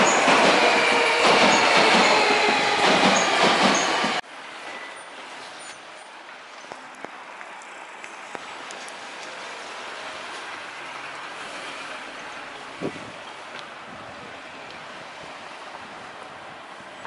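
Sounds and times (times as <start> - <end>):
electric train rumbling past: 0.0 - 4.9, 9.3 - 17.0
quiet street ambience: 0.0 - 17.0.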